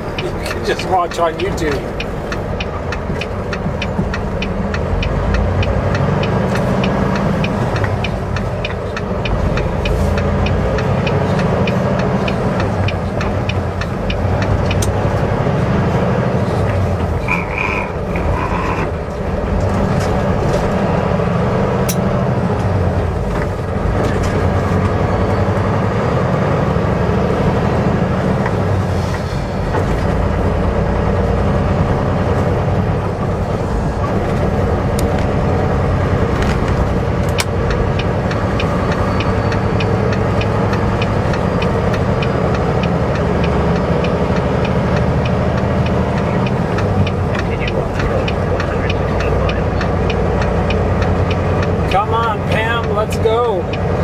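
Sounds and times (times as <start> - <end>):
fast regular ticking: 0.0 - 15.5, 34.4 - 54.0
road noise: 0.0 - 54.0
truck engine running: 0.0 - 54.0.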